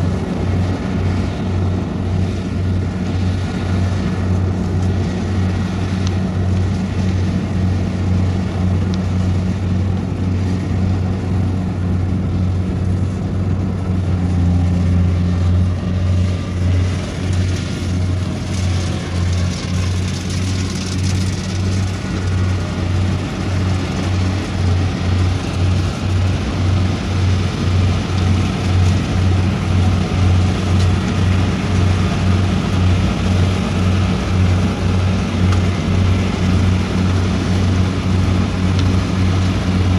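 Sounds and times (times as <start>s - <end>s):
diesel engine drone: 0.0s - 39.9s.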